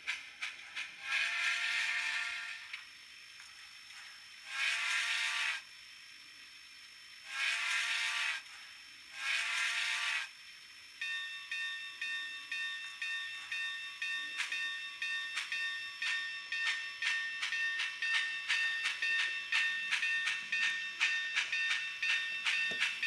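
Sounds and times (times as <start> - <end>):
model train whistle blasts: 1.1 - 2.6
bell ringing: 11.1 - 23.0.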